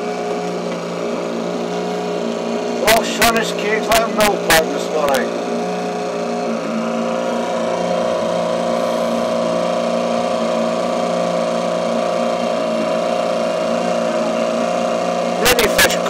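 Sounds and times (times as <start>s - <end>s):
outboard motor humming: 0.0s - 16.0s.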